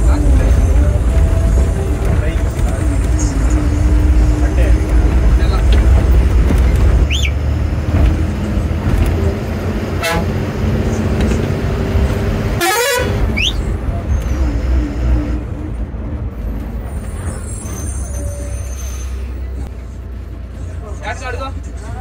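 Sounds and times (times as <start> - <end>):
bus engine running: 0.0 - 22.0
wavering horn toot: 10.0 - 10.4, 12.6 - 13.6.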